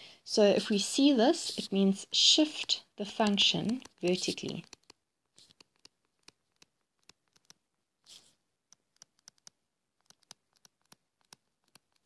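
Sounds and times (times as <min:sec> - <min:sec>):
stylus tapping on tablet screen: 0:03.2 - 0:07.6.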